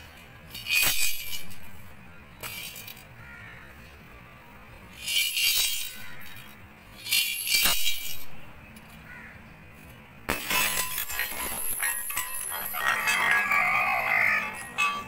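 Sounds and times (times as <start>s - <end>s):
coins rattling in money bank: 0.5s - 1.7s, 5.0s - 8.3s
coins clinking across floor: 5.0s - 8.3s, 10.5s - 14.8s
clay bank smashing on tiles: 10.3s - 14.1s.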